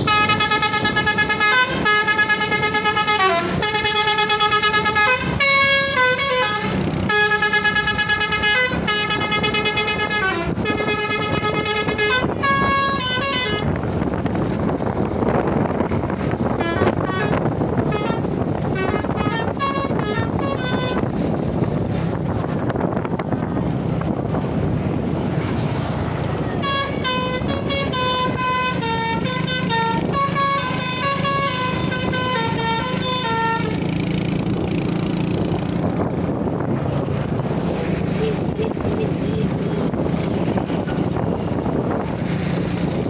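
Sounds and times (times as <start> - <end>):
bus horn playing melodies: 0.0 - 14.0, 16.4 - 21.3, 26.4 - 34.2, 38.1 - 39.9
wind and road noise: 0.0 - 43.0.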